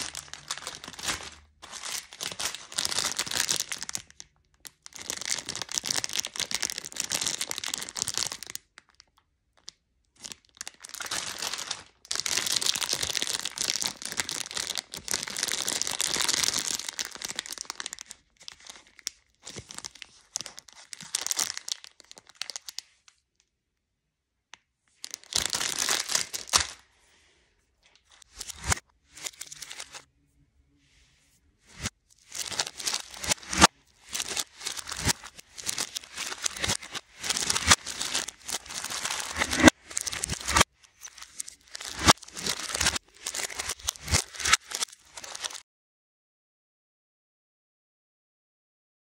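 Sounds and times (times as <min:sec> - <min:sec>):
plastic wrappers crinkling: 0:00.0 - 0:22.9, 0:25.0 - 0:26.8, 0:28.0 - 0:30.1, 0:31.7 - 0:45.6.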